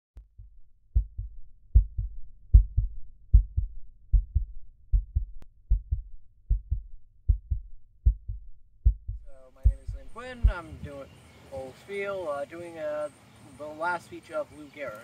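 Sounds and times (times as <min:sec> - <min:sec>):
heartbeat thumps: 0:00.2 - 0:11.0.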